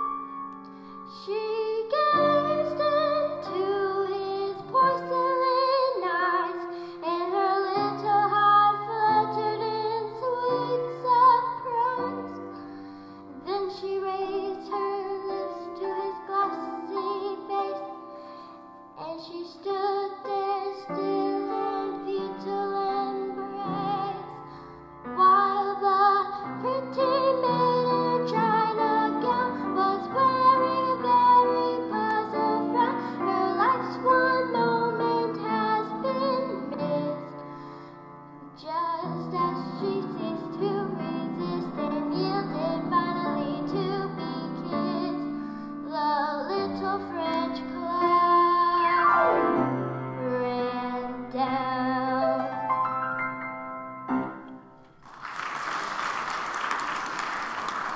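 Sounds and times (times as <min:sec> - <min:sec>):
girl singing into microphone: 0:00.0 - 0:49.1, 0:50.2 - 0:52.5
instrumental accompaniment: 0:48.8 - 0:51.0, 0:52.3 - 0:55.0
audience applause: 0:55.0 - 0:57.9.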